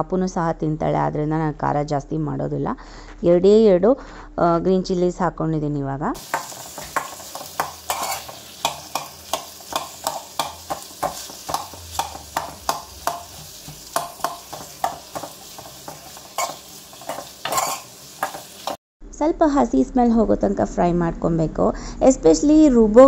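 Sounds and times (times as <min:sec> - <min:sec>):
metal spatula scraping a pan: 0:06.2 - 0:18.8
vegetables sizzling in hot oil: 0:06.2 - 0:18.8.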